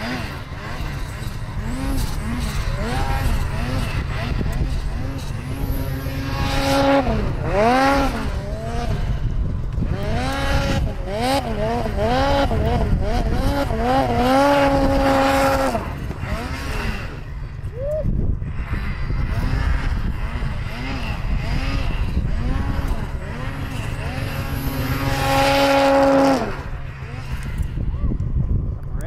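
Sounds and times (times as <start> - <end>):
snowmobile engine revving: 0.0 - 28.2.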